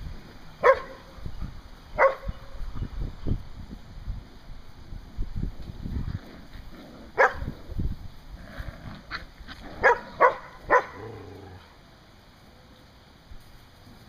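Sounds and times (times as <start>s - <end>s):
dogs barking: 0.6s - 1.1s, 2.0s - 2.4s, 7.2s - 7.5s, 9.1s - 11.3s.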